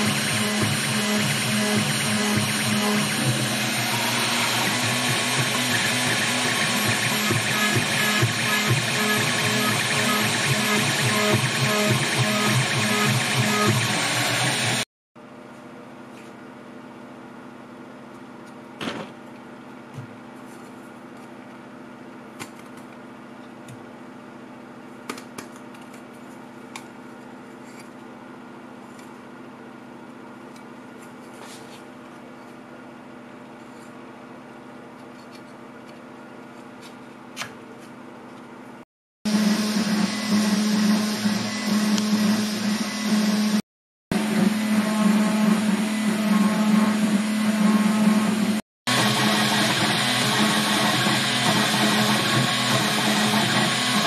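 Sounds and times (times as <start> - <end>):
router spindle motor humming: 0.0 - 14.8, 39.3 - 54.0.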